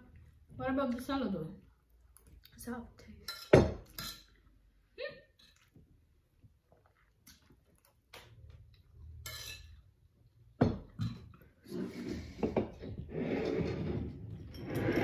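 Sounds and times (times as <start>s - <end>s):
fork scraping ceramic plate: 11.6s - 15.0s.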